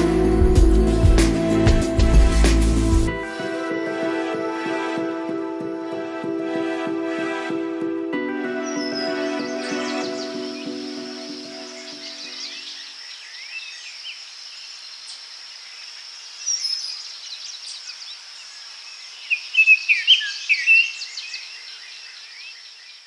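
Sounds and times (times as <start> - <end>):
birds chirping and singing: 8.5 - 23.0.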